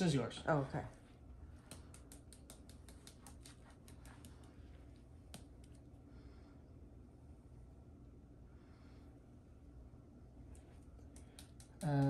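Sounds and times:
spice shaker clicking: 1.7 - 4.3.

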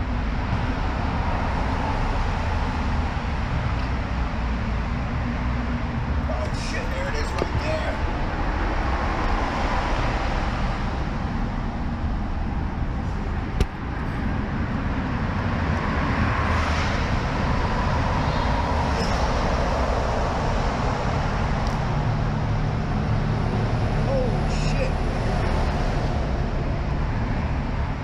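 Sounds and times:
vehicle engine hum: 0.0 - 28.0
sharp knock: 13.6 - 13.8.

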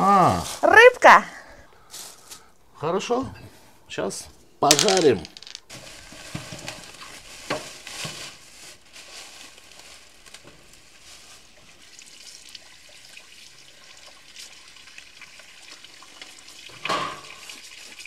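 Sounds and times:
tap water splashing into sink: 14.0 - 18.0.

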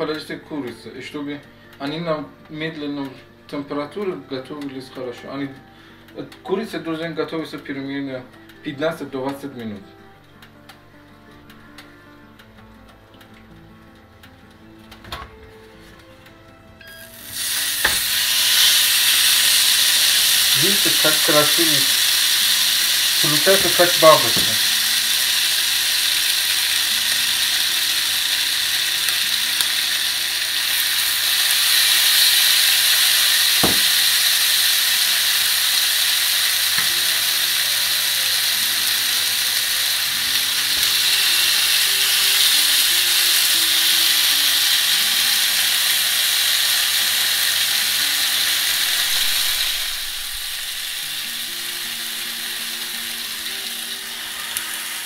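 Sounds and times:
chicken sizzling on electric grill: 16.9 - 55.0.

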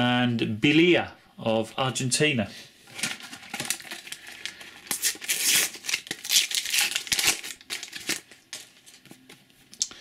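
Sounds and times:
wrapper crinkling: 2.9 - 9.3
paper packet tearing: 3.0 - 9.0.

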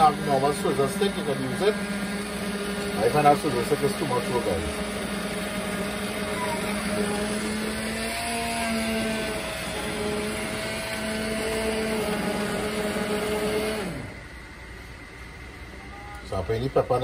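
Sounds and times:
immersion blender motor humming: 0.0 - 17.0.

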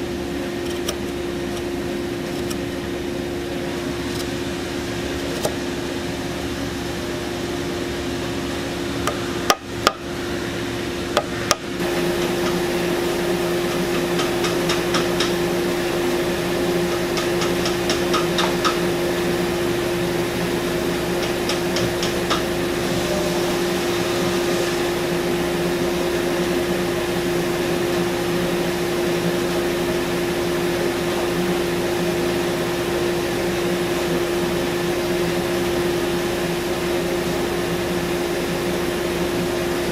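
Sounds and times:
belt sander humming: 0.0 - 7.5.

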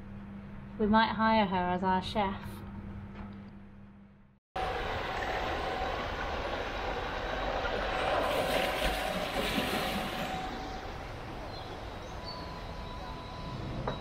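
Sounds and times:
water rushing and churning: 4.6 - 11.3.

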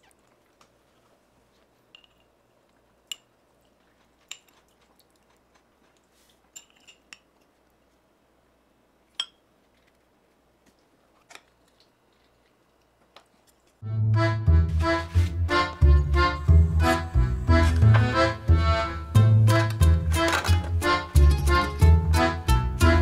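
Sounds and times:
fork clinking on ceramic dishes: 6.5 - 7.3.

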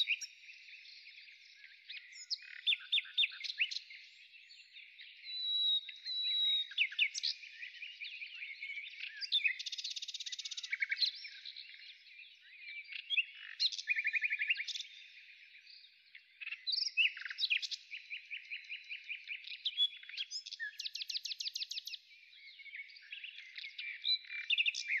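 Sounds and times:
birdsong chirps and whistles: 0.0 - 25.0.

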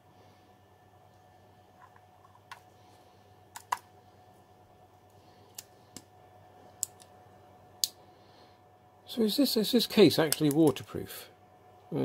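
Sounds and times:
plastic clicks and snaps: 10.3 - 10.8.

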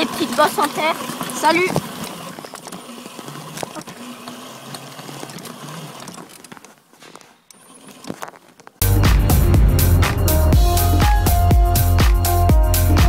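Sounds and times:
electric motor whirring: 0.0 - 6.7, 7.5 - 8.4
frame rattling with clicks: 0.0 - 8.8.

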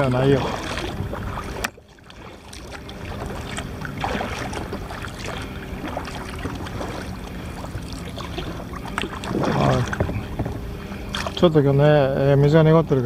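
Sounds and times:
water lapping against hull: 0.0 - 13.0.

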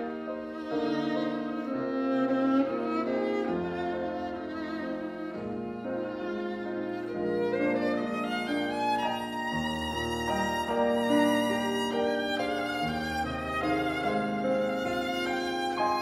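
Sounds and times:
piano accompaniment: 0.0 - 16.0
violin melody with vibrato: 0.0 - 16.0.

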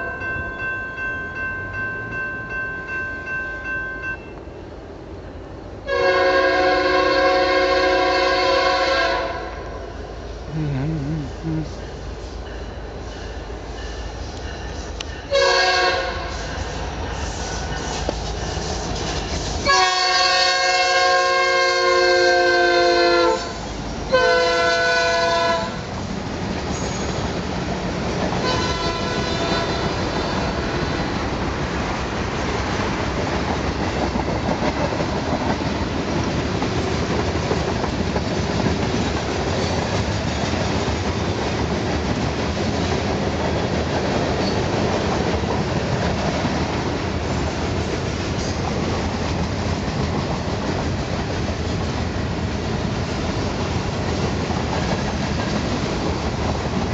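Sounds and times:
train horn: 5.8 - 10.0, 15.3 - 16.5, 19.6 - 25.9, 28.4 - 31.1
freight cars rolling on rails: 23.4 - 56.9.

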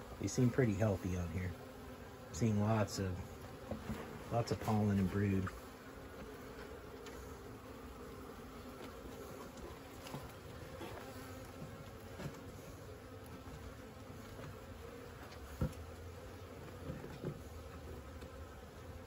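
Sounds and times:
honeybees buzzing: 0.0 - 19.0
light knocks on hive: 15.2 - 15.8.

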